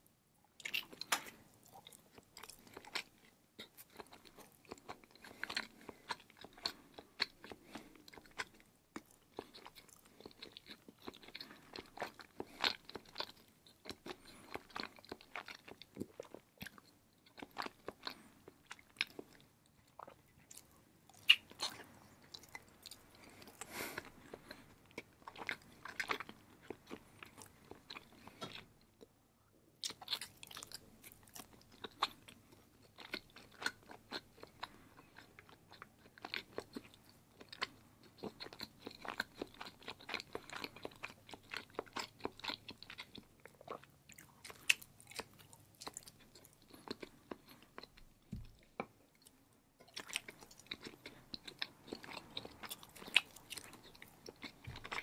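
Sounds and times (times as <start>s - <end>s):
person chewing cheese: 0.5s - 29.1s, 29.8s - 55.0s.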